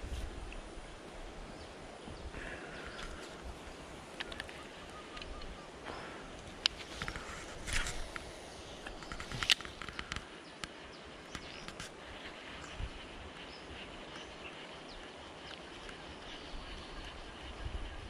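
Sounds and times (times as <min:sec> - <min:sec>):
quiet outdoor ambience: 0:00.0 - 0:18.0.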